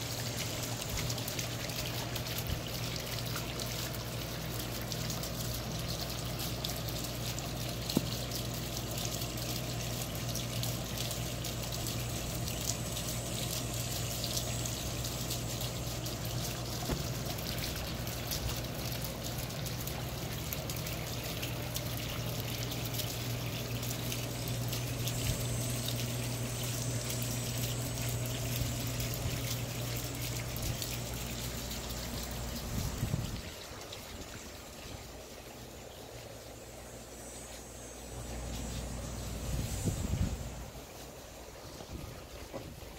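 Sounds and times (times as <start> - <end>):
fountain water trickling: 0.0 - 42.9
low steady hum: 0.0 - 42.9.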